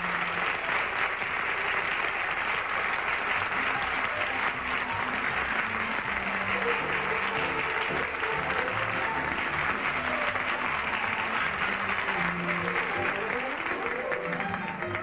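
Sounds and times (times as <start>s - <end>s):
audience applauding: 0.0s - 15.0s
faint theme music: 3.5s - 15.0s.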